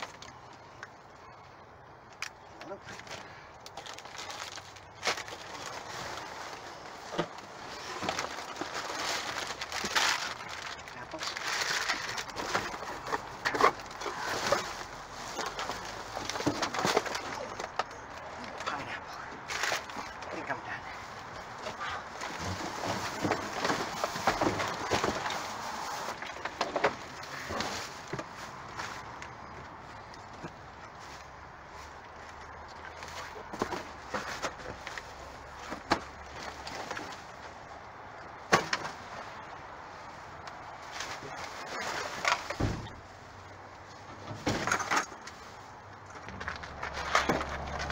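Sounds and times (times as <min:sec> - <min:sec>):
knocks and rustles: 0:03.8 - 0:20.5, 0:21.4 - 0:37.5, 0:40.8 - 0:43.2, 0:43.9 - 0:47.9
cardboard boxes shoved and dropped: 0:21.7 - 0:28.4.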